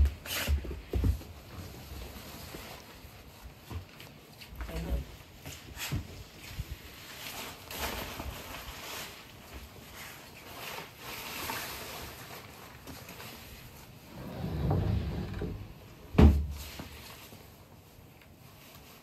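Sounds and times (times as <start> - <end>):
fabric rustling: 5.2 - 19.0.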